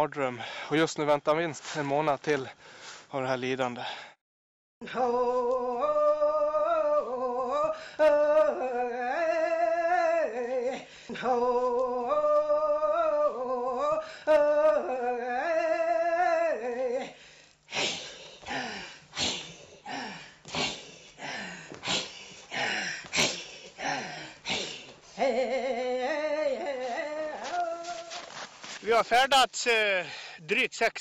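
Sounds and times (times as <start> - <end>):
person singing long notes: 4.8 - 17.1, 25.2 - 28.2
rhythmic noisy vocal pulses: 5.1 - 28.2.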